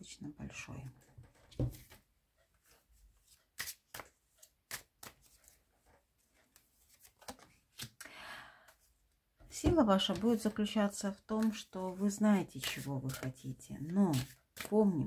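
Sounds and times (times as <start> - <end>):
cards rustling swish: 2.7 - 5.6, 12.6 - 14.8
cards clicking and tapping: 3.6 - 5.6.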